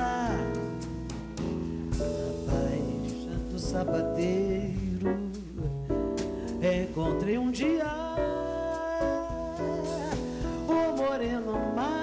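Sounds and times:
live band accompaniment: 0.0 - 12.0
woman singing samba: 6.6 - 12.0.

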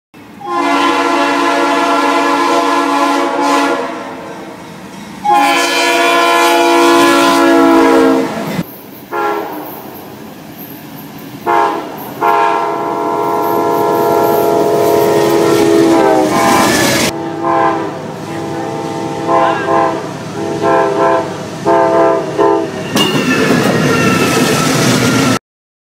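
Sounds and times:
train wheels on rails: 0.2 - 17.2, 18.0 - 25.4
locomotive air horn blasts: 0.4 - 4.3, 5.2 - 9.8, 11.4 - 22.8.

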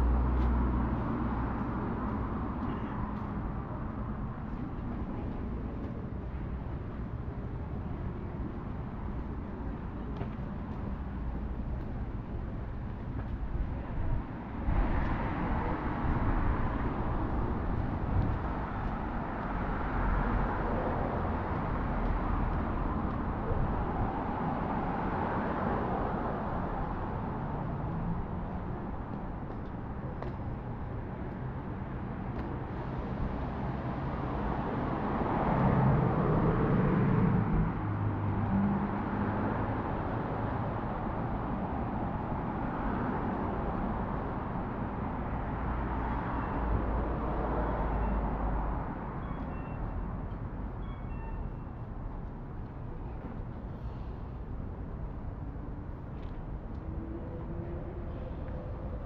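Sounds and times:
passing cars: 0.0 - 59.0.

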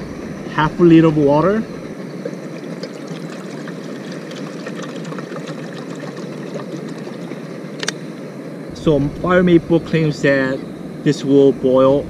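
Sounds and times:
water pouring into a pot: 2.4 - 7.5.

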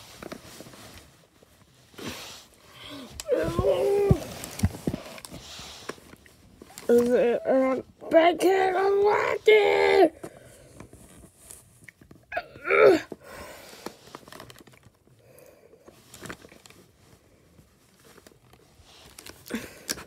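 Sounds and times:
child vocal sound: 2.8 - 4.4, 6.8 - 10.2.

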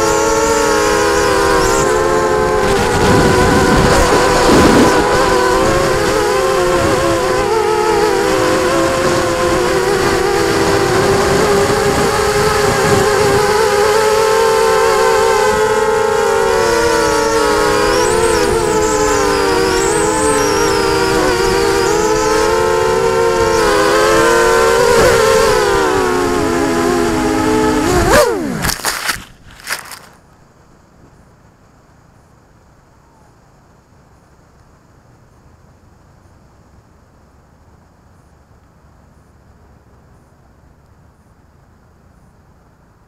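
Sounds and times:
drone motors and propellers whining: 0.0 - 30.2.

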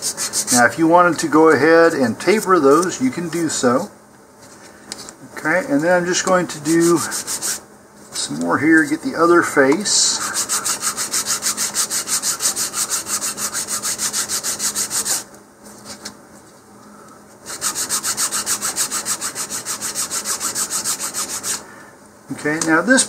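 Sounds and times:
sandpaper rasping on wood: 0.0 - 0.7, 6.6 - 7.6, 10.2 - 15.3, 17.5 - 21.6.

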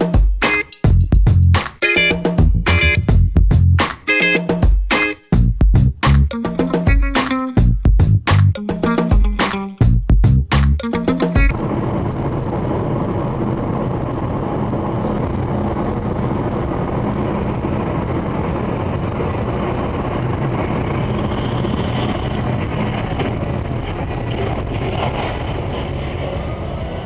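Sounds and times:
vehicle engine and road noise: 2.4 - 3.8, 11.4 - 27.0.

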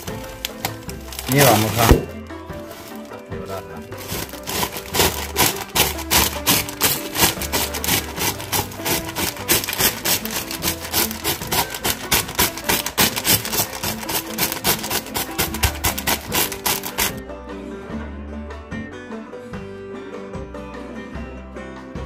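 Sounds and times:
plastic bag crinkling: 0.0 - 3.2, 3.9 - 17.2
potato chips crunching: 0.0 - 3.2, 3.9 - 17.2.

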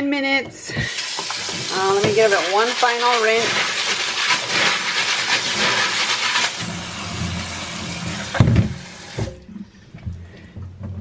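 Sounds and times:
tap water pouring into colander: 0.8 - 9.4
thump: 8.4 - 9.4.

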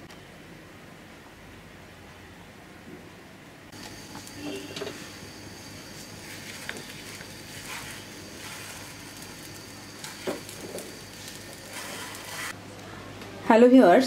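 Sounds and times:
frying pan sizzling: 3.7 - 12.6.

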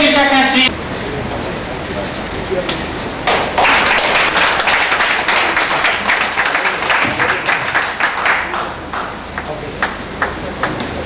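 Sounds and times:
audience applauding: 3.2 - 10.8.

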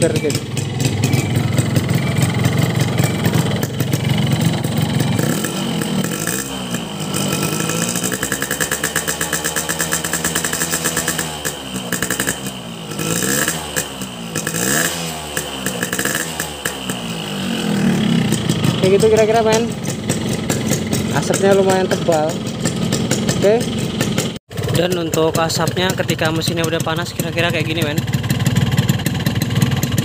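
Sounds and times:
engine rattling knock: 0.0 - 6.4, 7.1 - 12.4, 18.0 - 30.0
two-stroke motorcycle engine revving: 0.0 - 30.0.

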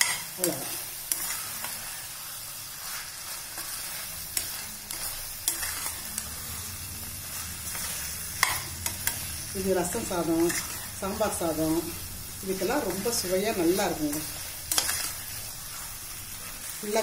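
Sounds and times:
food sizzling in a pot: 0.0 - 17.0
metal ladle scraping a pot: 4.3 - 6.2, 14.7 - 15.4.

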